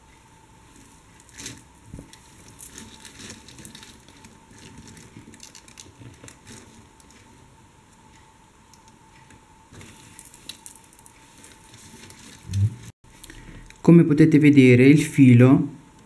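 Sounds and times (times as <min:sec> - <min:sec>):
beads clicking and rustling: 0:00.8 - 0:07.3, 0:09.7 - 0:13.8.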